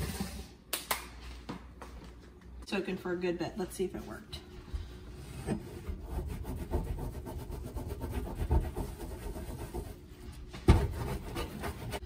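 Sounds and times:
cloth scrubbing stovetop: 4.6s - 12.0s.

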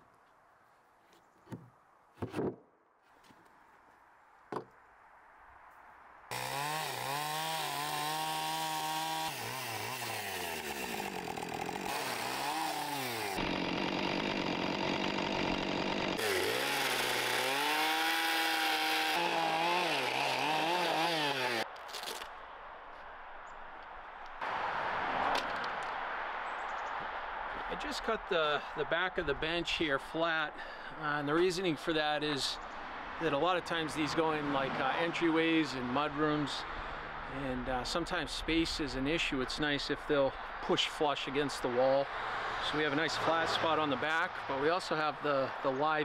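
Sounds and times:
chainsaw cutting wood: 6.3s - 22.3s.

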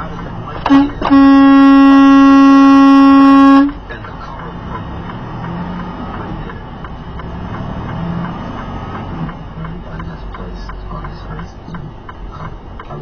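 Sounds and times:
engine and road noise in cab: 0.0s - 13.0s
truck horn blast: 0.6s - 3.8s.

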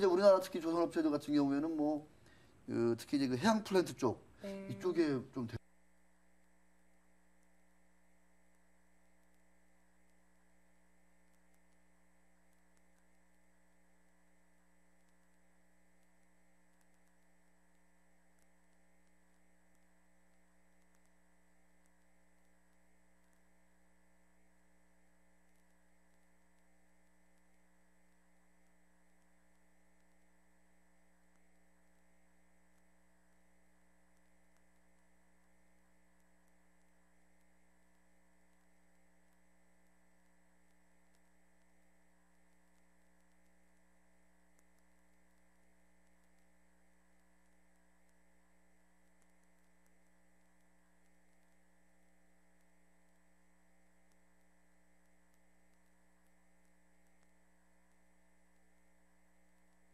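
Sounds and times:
faint electrical hum: 0.0s - 59.9s.

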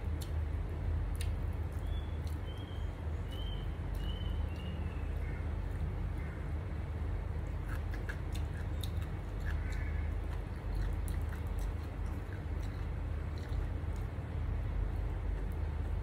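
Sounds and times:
chewing and lip-smacking: 0.0s - 0.4s, 1.0s - 2.7s, 7.4s - 16.0s
steady low rumble: 0.0s - 16.0s
small wet clicks of fingers: 0.1s - 0.4s, 1.1s - 2.4s.

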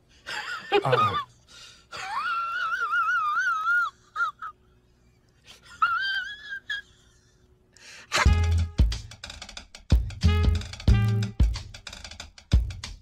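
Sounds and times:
woman wailing and sobbing: 2.0s - 4.6s, 5.6s - 7.3s.

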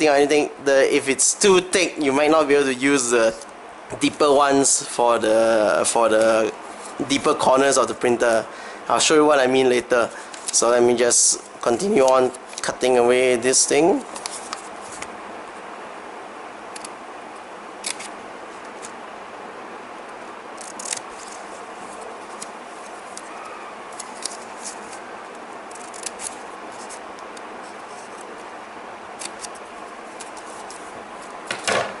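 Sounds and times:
steady hiss: 0.0s - 32.0s
scissors snipping paper: 17.8s - 18.1s, 20.6s - 21.4s, 22.0s - 25.0s, 25.7s - 27.0s, 29.2s - 29.6s.

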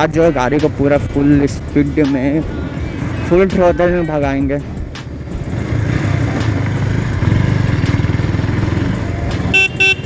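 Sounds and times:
motorcycle engine running: 0.0s - 10.0s
vehicle horn toots: 9.5s - 10.0s.

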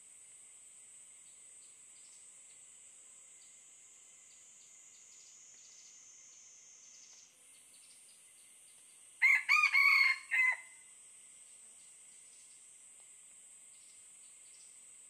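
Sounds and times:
faint high insect buzz: 0.0s - 15.0s
rooster crowing: 9.2s - 10.9s.

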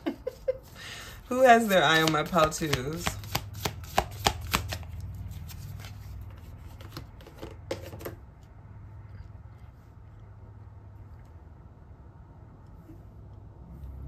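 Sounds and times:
low steady hum: 0.0s - 14.0s
cards being shuffled: 1.5s - 8.2s.

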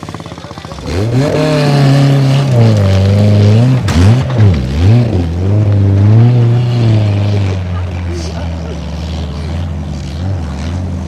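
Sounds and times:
faint motorcycle engine: 0.0s - 11.0s
motorcycle engine revving hard: 0.0s - 11.0s.

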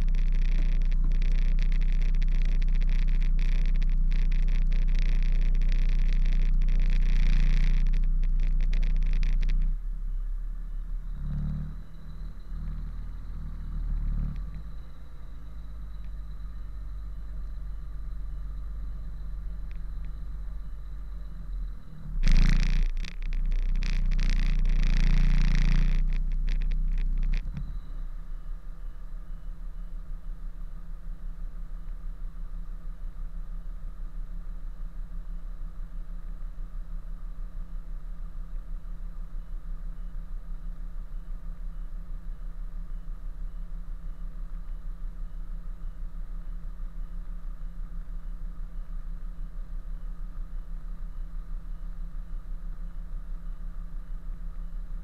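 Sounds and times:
loud hissing rumbling noise: 0.0s - 28.4s.

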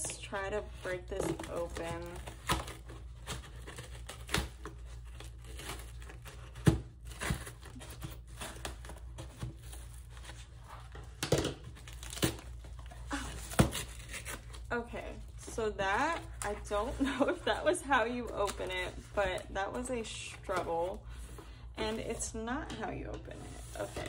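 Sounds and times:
scissors cutting cardboard: 0.8s - 9.8s, 11.7s - 14.6s
cardboard torn by hand: 1.4s - 10.1s, 11.6s - 14.7s.

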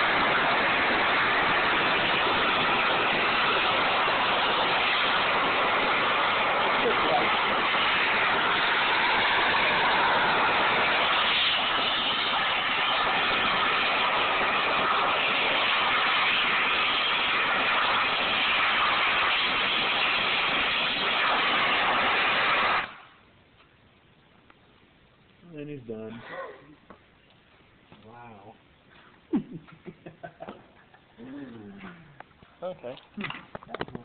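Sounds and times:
blowtorch flame hissing: 0.0s - 23.1s.

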